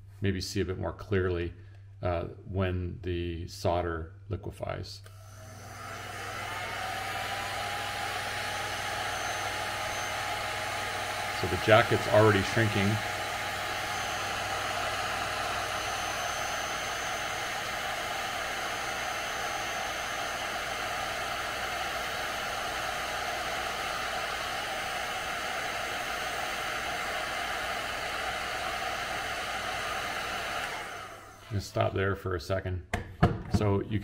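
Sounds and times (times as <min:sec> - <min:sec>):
heat gun blowing air: 0:05.0 - 0:31.6.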